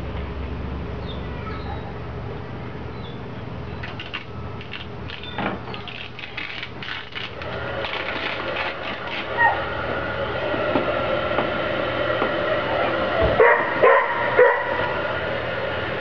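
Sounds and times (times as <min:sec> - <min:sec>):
heat gun whirring: 0:03.8 - 0:09.8.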